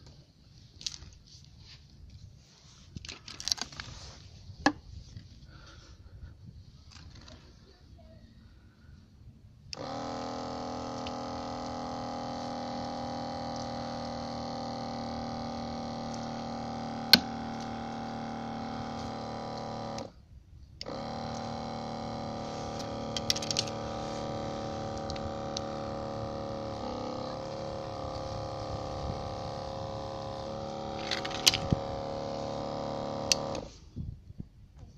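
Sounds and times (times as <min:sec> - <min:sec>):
electric pump buzzing hum: 0:09.7 - 0:33.9.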